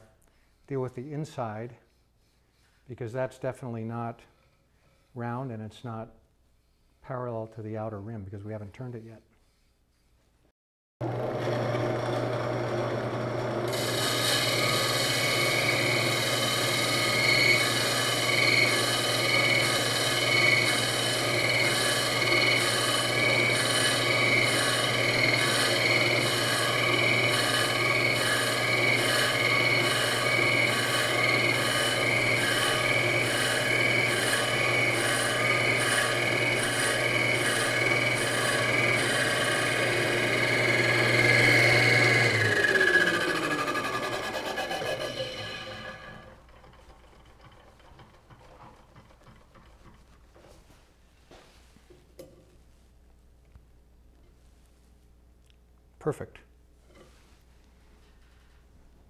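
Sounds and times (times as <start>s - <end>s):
wood lathe humming: 11.0s - 50.2s
cutting tool scraping wood: 13.7s - 50.5s.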